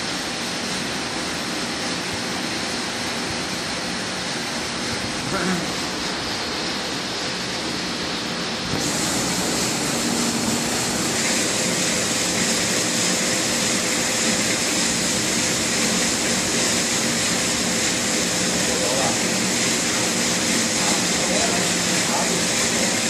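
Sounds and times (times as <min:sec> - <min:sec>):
oil frying: 0:00.0 - 0:23.0.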